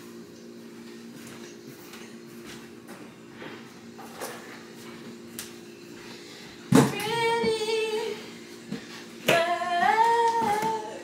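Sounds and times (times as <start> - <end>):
woman singing long notes: 9.3 - 11.0.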